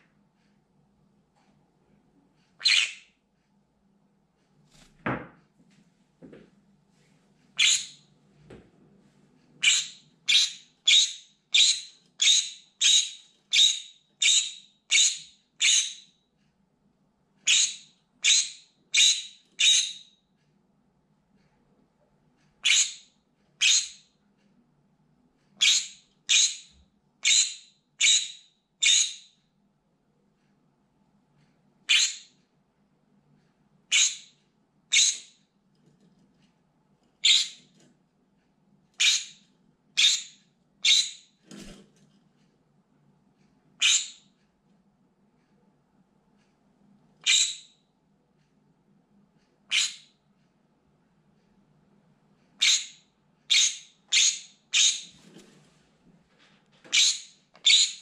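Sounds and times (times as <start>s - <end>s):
parrot screaming: 2.6s - 3.0s.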